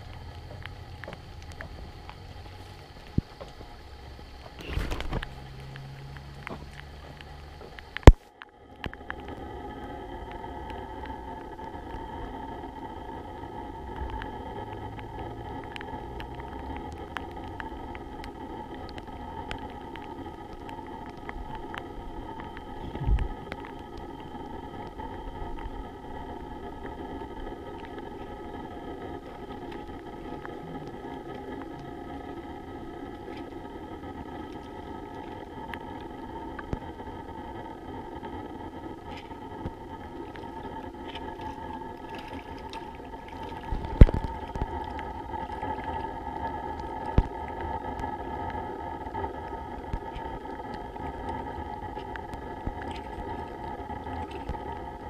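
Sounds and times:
light ticks: 0.0s - 9.4s
faint steady high tones: 0.0s - 55.0s.

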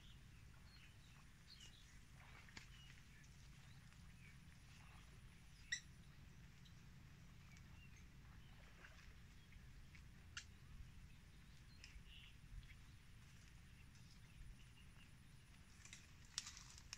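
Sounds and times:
faint bird chirps: 0.0s - 13.0s
faint low rumble: 0.0s - 16.9s.

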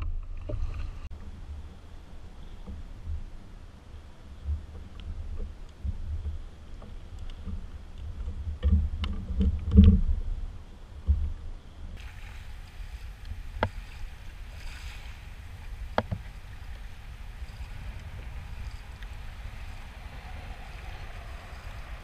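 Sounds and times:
wind rumble on microphone: 0.0s - 22.0s
water lapping against kayak hull: 11.9s - 22.0s.

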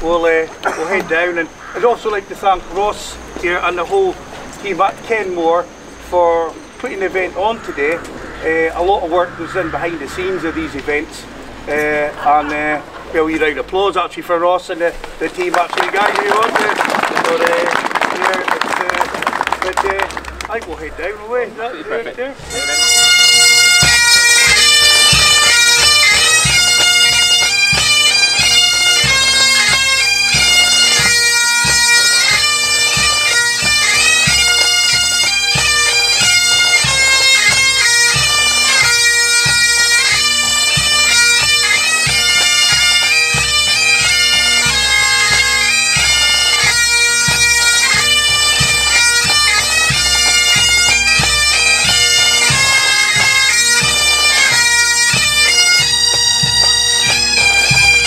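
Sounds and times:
bagpipes playing a tune: 0.0s - 58.0s
marching drums: 22.4s - 58.0s.

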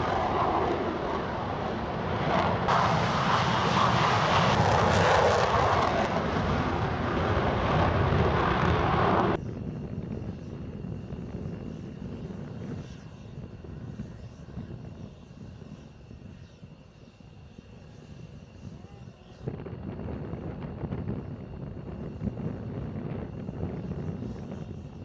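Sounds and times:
low rumble: 0.0s - 10.5s
jet engines roaring: 0.0s - 15.8s.

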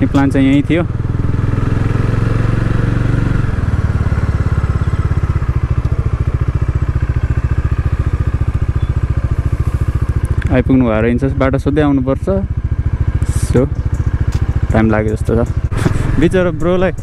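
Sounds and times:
motorcycle engine chugging: 0.0s - 17.0s.

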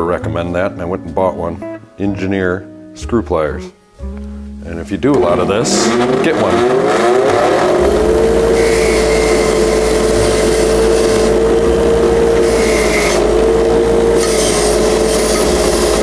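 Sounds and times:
bench grinder wire wheel humming: 5.2s - 16.0s.

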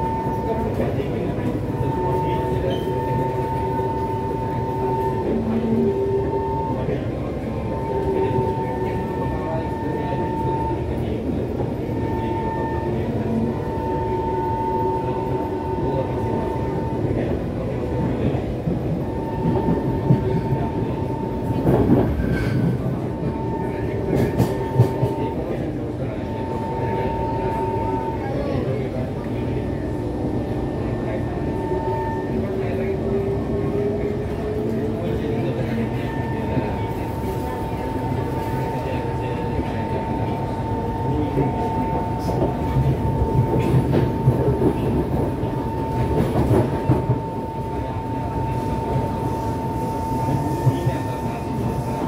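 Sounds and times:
train wheels rumbling on track: 0.0s - 52.0s.

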